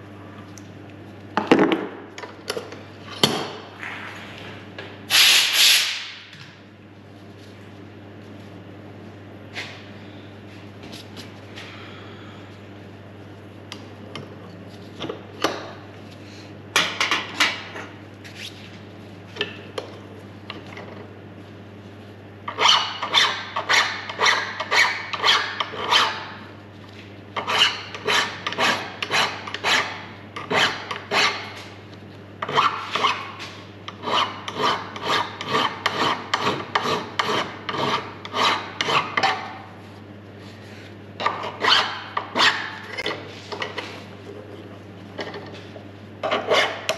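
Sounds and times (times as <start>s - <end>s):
steady low hum: 0.0s - 46.9s
hand file rasping on metal: 34.0s - 39.4s.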